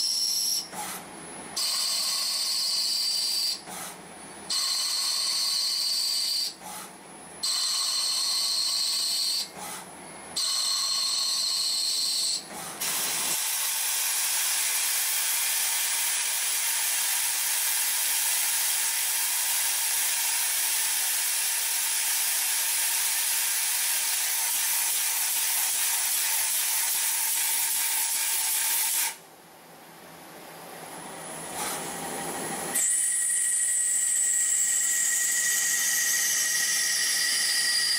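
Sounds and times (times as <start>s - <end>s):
lathe cutting metal hiss: 12.8s - 29.2s, 32.7s - 37.9s.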